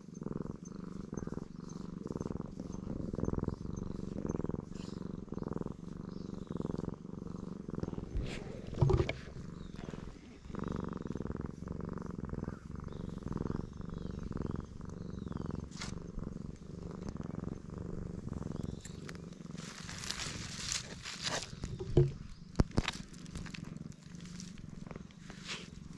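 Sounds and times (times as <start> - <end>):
cat purring: 0.0 - 25.9
brief thump: 8.7 - 9.3.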